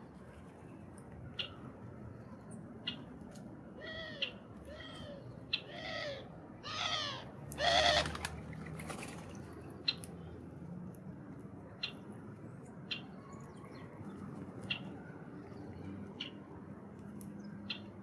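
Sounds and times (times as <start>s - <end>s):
bird pitched calls: 3.8s - 8.2s.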